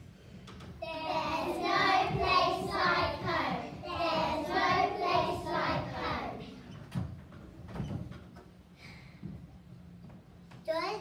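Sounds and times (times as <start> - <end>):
children singing together: 0.8 - 6.6.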